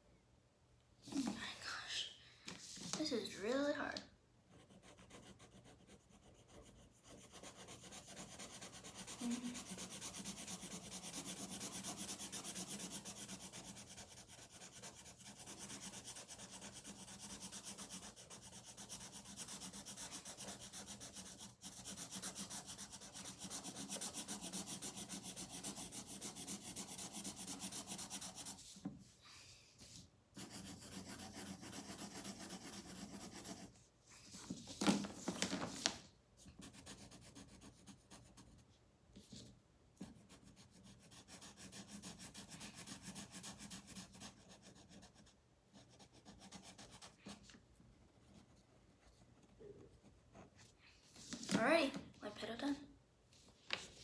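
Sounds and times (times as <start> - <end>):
marker scribbling on paper: 4.5 - 28.9, 29.8 - 35.0, 35.7 - 38.6, 39.2 - 47.6.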